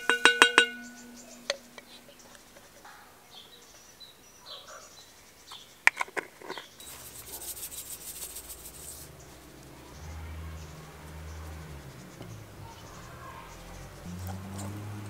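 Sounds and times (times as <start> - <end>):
faint bird chirps: 0.1 - 5.8
salt rattling into metal bowl: 6.8 - 9.2.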